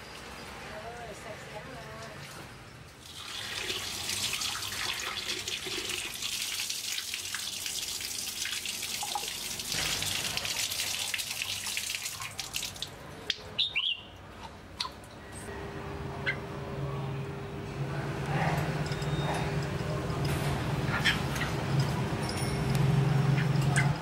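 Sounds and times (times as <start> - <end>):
tap water running and splashing: 3.0 - 13.0.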